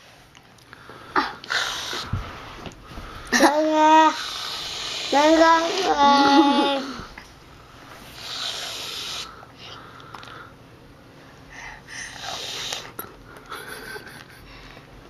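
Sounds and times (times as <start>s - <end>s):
aerosol can hissing: 1.5s - 2.2s, 4.1s - 5.6s, 8.1s - 9.3s, 12.2s - 12.9s.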